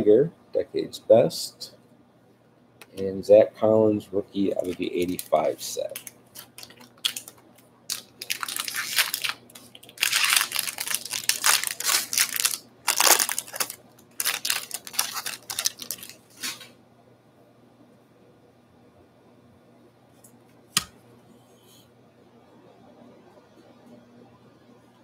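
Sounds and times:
card pack wrappers crinkling and tearing: 0:04.4 - 0:16.6
wrappers being crumpled: 0:04.5 - 0:16.6.

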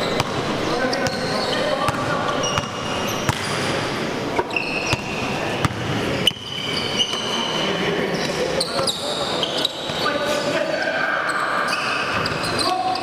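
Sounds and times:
indoor hall noise: 0:00.0 - 0:13.0
sneakers squeaking: 0:00.0 - 0:13.0.

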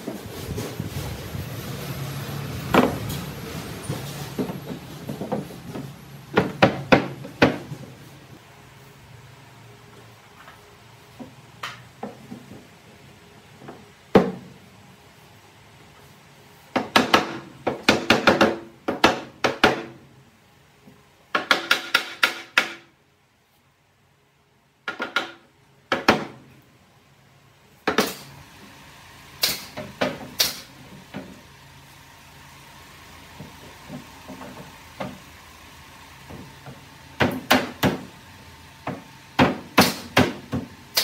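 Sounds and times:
wooden panels knocking: 0:04.3 - 0:07.8, 0:16.7 - 0:20.0, 0:21.3 - 0:22.9, 0:24.9 - 0:26.4, 0:38.8 - 0:40.7.

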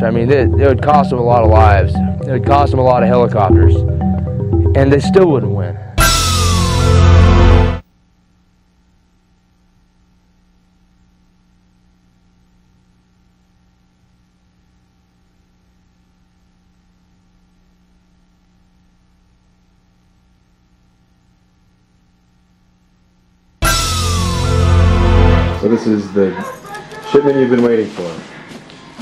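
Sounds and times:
music: 0:00.0 - 0:07.8, 0:23.6 - 0:27.2
faint electrical hum: 0:07.8 - 0:23.7.

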